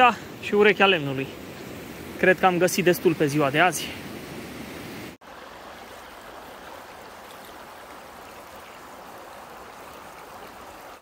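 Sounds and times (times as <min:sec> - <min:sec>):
creek water rushing: 0:00.0 - 0:11.0.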